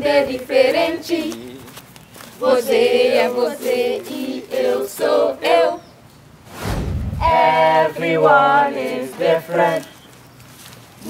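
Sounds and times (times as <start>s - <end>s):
young voices singing in unison: 0.0s - 1.6s, 2.4s - 6.0s, 7.2s - 9.9s.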